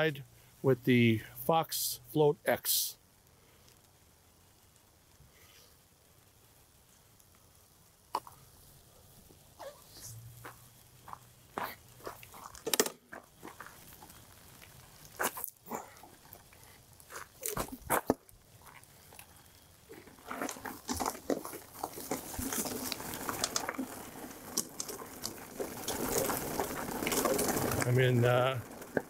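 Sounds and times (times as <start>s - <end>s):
bike tyres rolling over gravel: 3.5s - 29.0s
footsteps on gravel and leaves: 10.4s - 19.3s, 19.9s - 29.0s.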